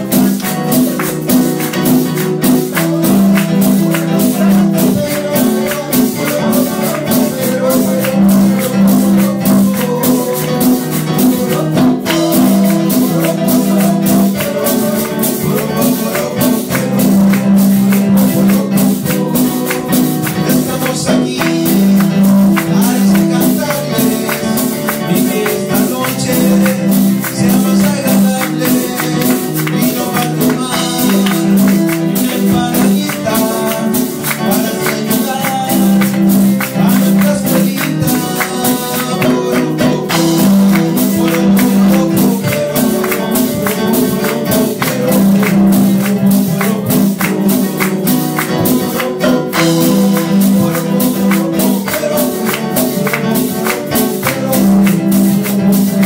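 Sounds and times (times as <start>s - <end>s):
hand percussion: 0.0s - 56.0s
keyboard chords: 0.0s - 56.0s
man singing: 0.0s - 56.0s.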